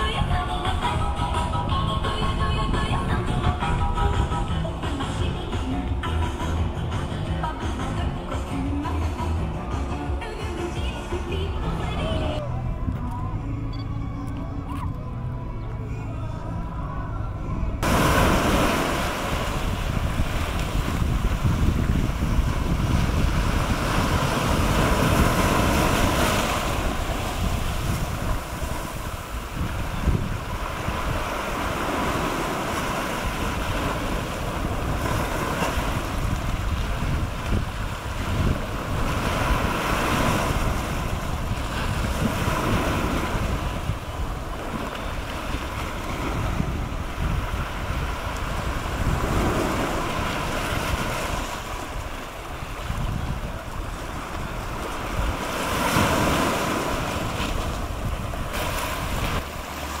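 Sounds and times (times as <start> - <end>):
wind buffeting microphone: 17.4 - 59.6
waves washing over rocks: 17.8 - 60.0.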